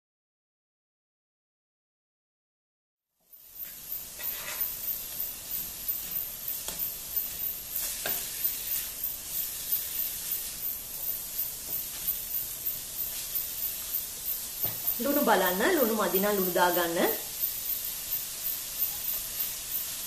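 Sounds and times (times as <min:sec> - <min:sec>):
sauce sizzling in a wok: 0:03.2 - 0:20.0
wooden spatula scraping: 0:03.6 - 0:16.6.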